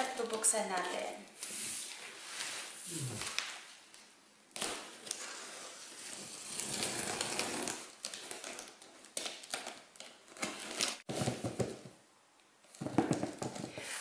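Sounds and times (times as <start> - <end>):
cutter slitting packing tape: 6.0 - 9.7.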